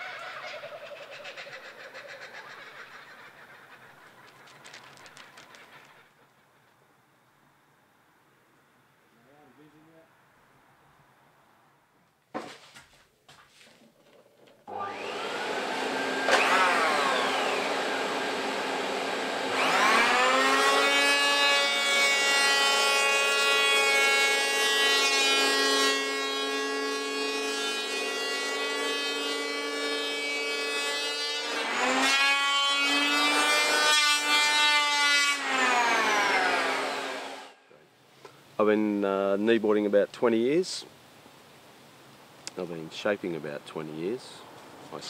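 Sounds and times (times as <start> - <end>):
electric power planer whining: 14.7 - 37.5.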